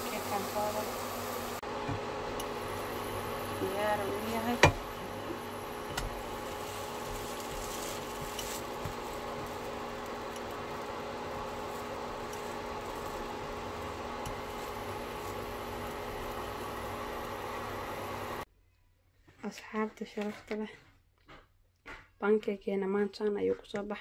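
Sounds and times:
pancake sizzling in a pan: 2.5 - 18.4.

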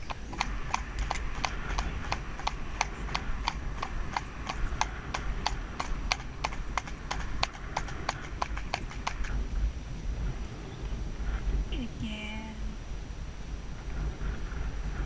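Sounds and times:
horse hooves on tarmac: 0.0 - 11.7.

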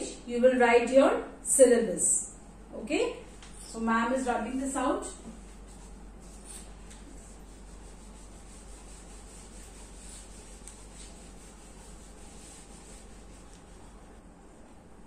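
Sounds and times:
eraser rubbing on whiteboard: 5.1 - 14.2.

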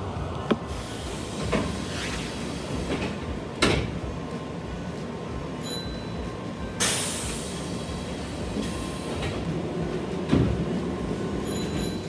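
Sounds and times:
stopped train humming: 0.0 - 12.0
pneumatic door air hiss: 0.7 - 3.3, 6.8 - 9.4.

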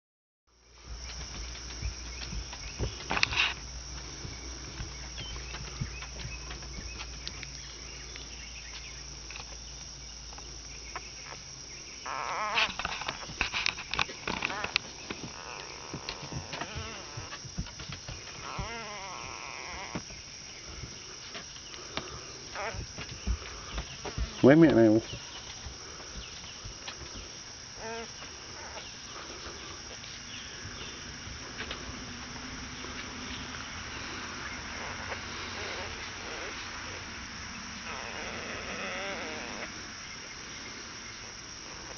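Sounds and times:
puppies squeaking: 11.2 - 13.4, 14.0 - 17.4, 18.3 - 20.1, 27.8 - 28.9
puppy whining: 14.3 - 17.4, 18.3 - 20.1, 27.8 - 29.3.

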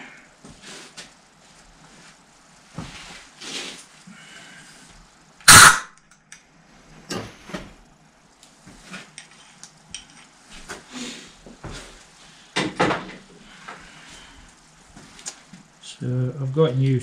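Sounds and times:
air blow gun blast: 5.5 - 5.9.

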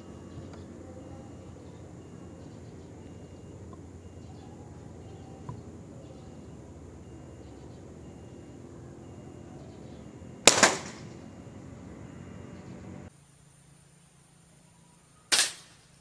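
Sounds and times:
air rifle shot: 10.4 - 11.2, 15.3 - 15.8.

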